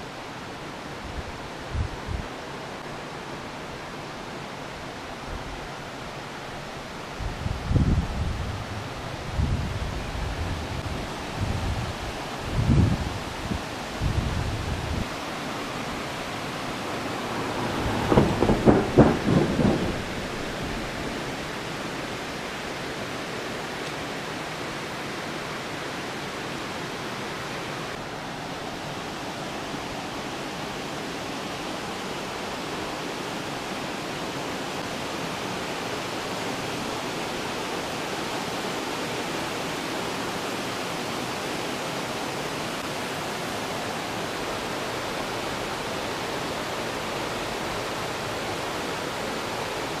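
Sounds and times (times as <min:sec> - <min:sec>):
river rapids rushing over rocks: 0:08.2 - 0:50.0
loud rumble: 0:17.2 - 0:21.0.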